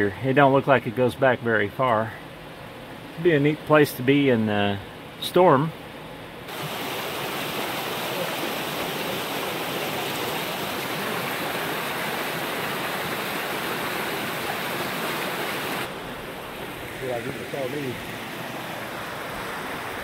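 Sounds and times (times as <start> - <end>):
water rushing over rocks: 6.5 - 20.0.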